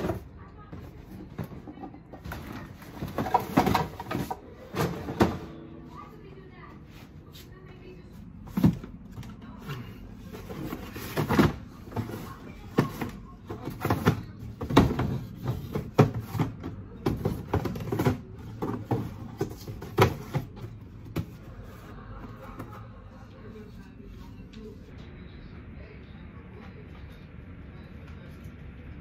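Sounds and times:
cardboard boxes knocking and scraping: 0:00.8 - 0:05.5, 0:10.4 - 0:21.5.

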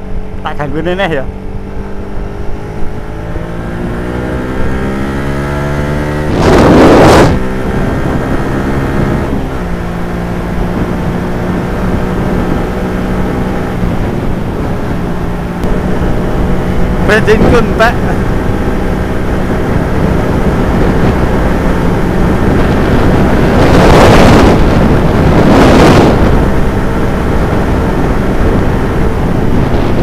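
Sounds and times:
motorcycle engine accelerating: 0:00.0 - 0:30.0
loud rush of noise: 0:05.8 - 0:10.0, 0:13.4 - 0:30.0.

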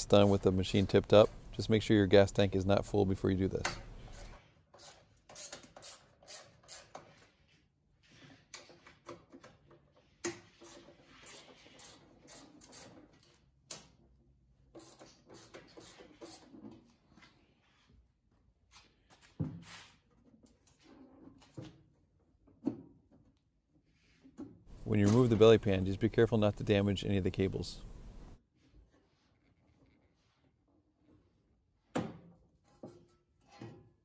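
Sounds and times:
hands handling machine clicks and rustles: 0:24.8 - 0:25.8.

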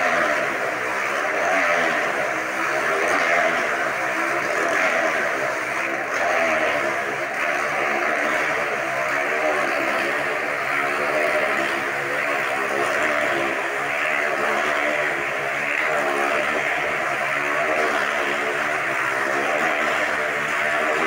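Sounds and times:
motorcycle engines revving high: 0:00.0 - 0:21.0.

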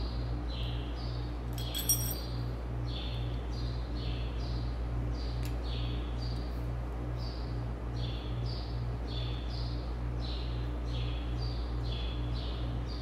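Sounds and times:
steady shop hum: 0:00.0 - 0:07.9
metallic clink of hand tool: 0:01.6 - 0:02.3.

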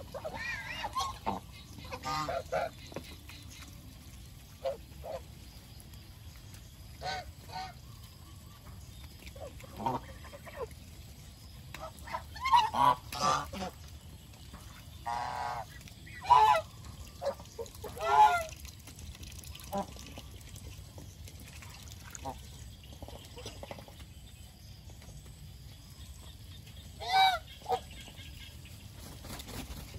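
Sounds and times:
geese honking: 0:00.0 - 0:02.7, 0:11.8 - 0:13.8, 0:15.0 - 0:18.6.

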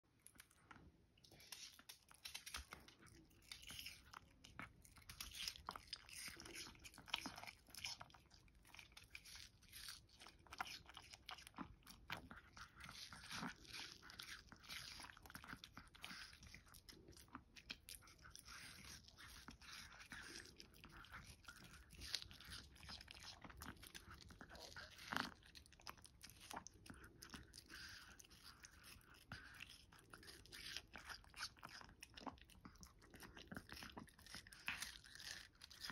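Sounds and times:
dog chewing watermelon: 0:01.3 - 0:35.9.

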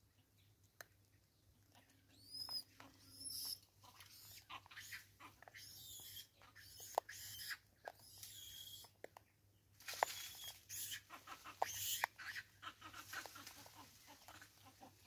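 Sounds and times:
scratchy high bird chatter: 0:01.7 - 0:09.0, 0:09.9 - 0:14.8
bird whistles: 0:10.0 - 0:11.0.

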